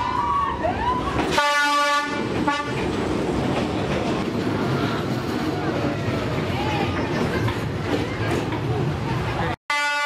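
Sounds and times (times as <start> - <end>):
locomotive engine and wheel noise: 0.0 - 9.6
diesel locomotive horn: 1.3 - 2.9, 9.7 - 10.0.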